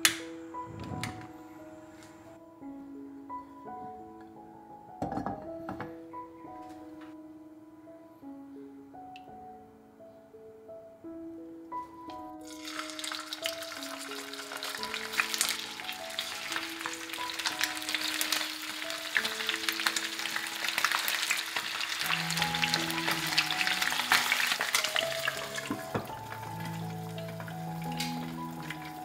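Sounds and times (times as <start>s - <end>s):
glass lid knocking on pan: 5.0s - 5.9s
chicken sizzling in oil: 12.4s - 29.0s.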